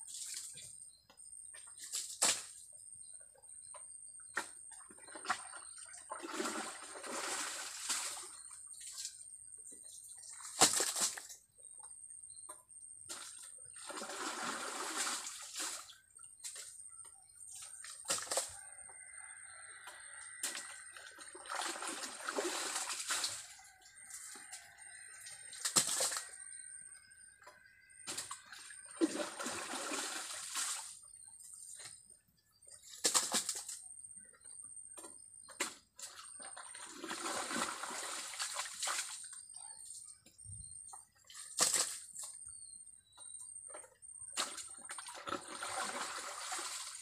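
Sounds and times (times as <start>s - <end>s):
muddy water splashing from bucket: 4.4s - 9.2s, 10.2s - 11.4s, 13.1s - 16.8s, 17.4s - 18.6s, 20.0s - 27.0s, 27.6s - 31.2s, 32.9s - 33.8s, 35.5s - 39.6s, 41.2s - 42.4s, 43.7s - 47.0s.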